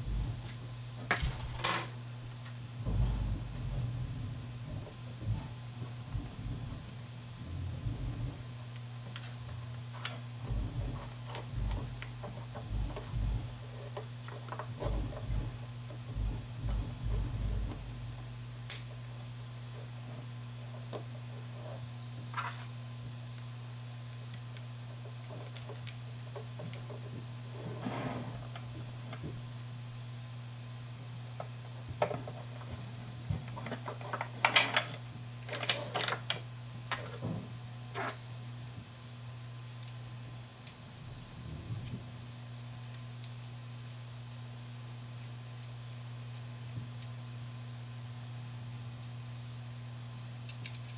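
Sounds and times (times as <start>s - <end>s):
low hum: 0.0s - 9.8s, 10.4s - 13.8s, 14.6s - 19.2s
steady low hum: 0.0s - 50.9s.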